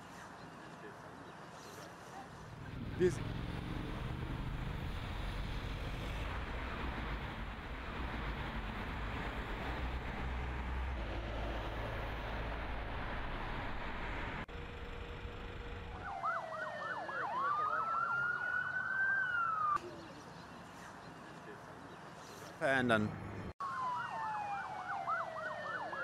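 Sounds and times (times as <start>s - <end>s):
emergency siren yelping and wailing: 15.7s - 19.8s, 23.6s - 26.0s.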